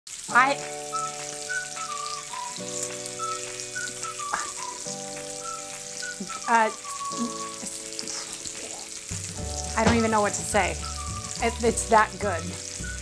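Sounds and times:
bacon sizzling on a grill: 0:00.1 - 0:13.0
background music with held chords: 0:00.3 - 0:13.0.

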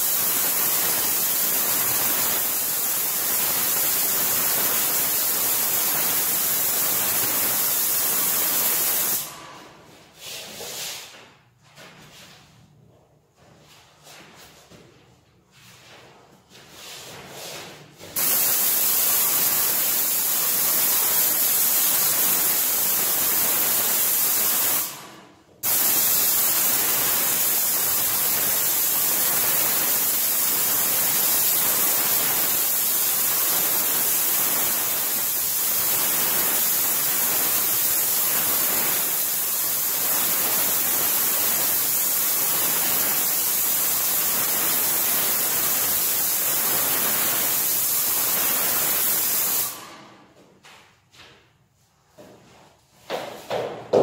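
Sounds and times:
paint sprayer hissing: 0:00.0 - 0:11.5, 0:15.8 - 0:50.1, 0:53.1 - 0:54.0.

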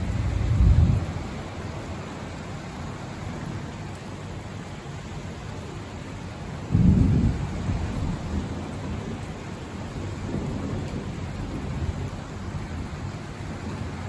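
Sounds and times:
thunder rumbling: 0:00.0 - 0:01.5, 0:06.6 - 0:14.0
rain hissing: 0:00.0 - 0:14.0.

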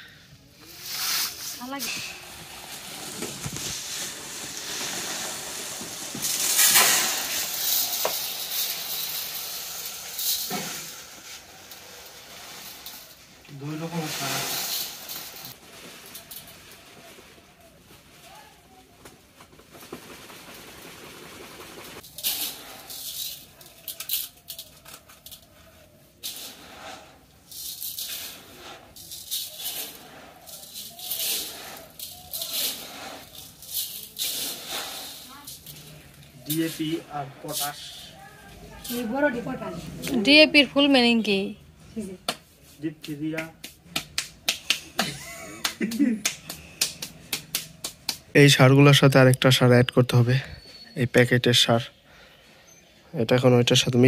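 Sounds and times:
plastic sack rustling: 0:00.5 - 0:41.2
granules pouring into metal basin: 0:00.7 - 0:16.8, 0:20.4 - 0:39.2.

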